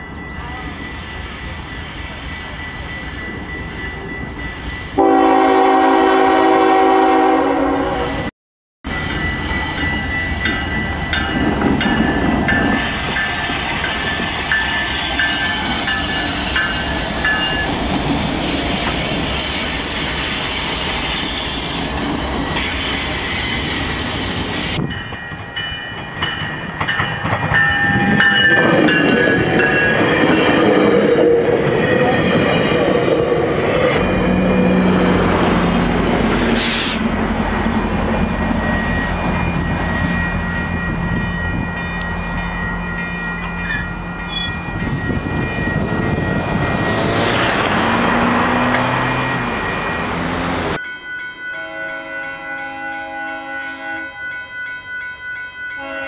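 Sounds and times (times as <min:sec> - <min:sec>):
train rumble and wheel noise: 0:00.0 - 0:08.3, 0:08.9 - 0:56.0
diesel train horn: 0:05.0 - 0:08.3, 0:51.6 - 0:54.2, 0:55.8 - 0:56.0
low locomotive engine drone: 0:24.8 - 0:54.7.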